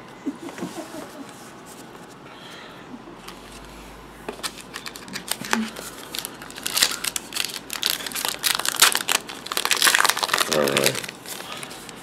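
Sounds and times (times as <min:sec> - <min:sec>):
wrapper crinkling and tearing: 0:04.4 - 0:12.0.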